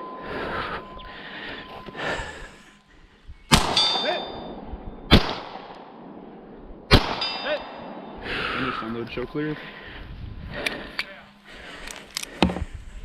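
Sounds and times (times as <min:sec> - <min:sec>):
pistol shots: 0:03.5 - 0:04.1, 0:05.1 - 0:06.1, 0:06.9 - 0:08.2
steel target ringing: 0:03.5 - 0:05.3, 0:06.9 - 0:08.2.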